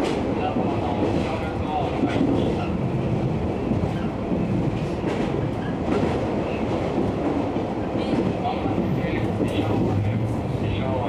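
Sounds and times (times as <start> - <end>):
train wheels rumbling on rail: 0.0 - 11.0
faint rail clacks: 3.7 - 11.0.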